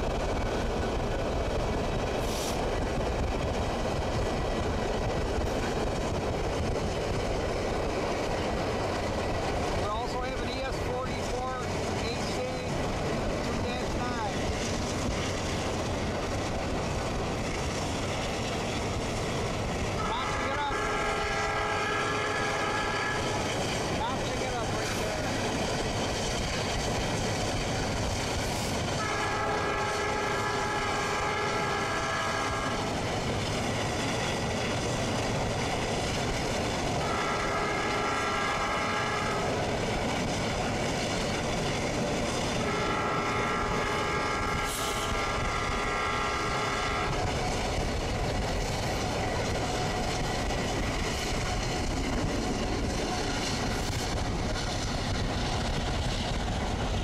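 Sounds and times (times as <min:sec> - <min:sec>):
train wheels clattering: 0:00.0 - 0:20.0, 0:20.8 - 0:57.0
train rumble: 0:00.0 - 0:57.0
locomotive horn blasts: 0:20.0 - 0:23.4, 0:29.0 - 0:32.8, 0:37.0 - 0:39.4, 0:42.6 - 0:47.2.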